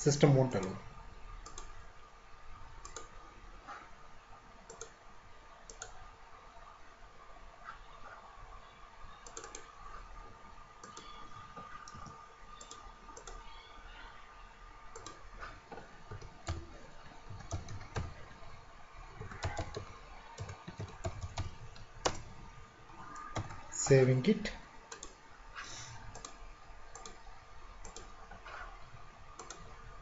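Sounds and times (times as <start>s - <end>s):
mouse clicks: 1.4s - 1.7s, 2.8s - 3.1s, 4.7s - 5.0s, 5.7s - 6.0s, 9.2s - 9.7s, 10.8s - 13.4s, 26.1s - 27.2s, 27.8s - 28.6s, 29.4s - 29.7s
computer keyboard typing: 1.4s - 1.8s, 2.8s - 3.2s, 4.7s - 5.0s, 5.7s - 6.0s, 9.2s - 10.0s, 10.8s - 13.5s, 14.9s - 18.5s, 19.1s - 24.1s, 24.9s - 25.2s, 26.0s - 28.7s, 29.4s - 29.8s.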